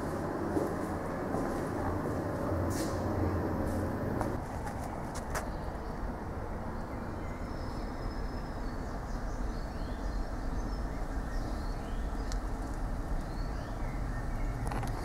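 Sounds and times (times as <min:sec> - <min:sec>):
steady low rushing noise: 0:00.0 - 0:07.2
birds chirping: 0:01.4 - 0:15.0.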